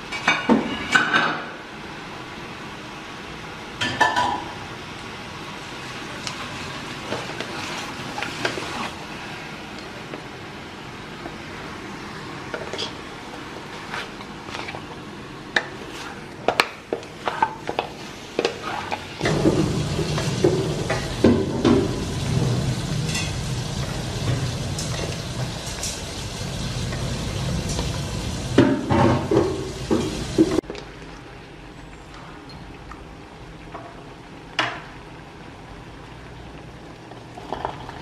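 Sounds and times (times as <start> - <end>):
frying sizzle: 0.0 - 38.0.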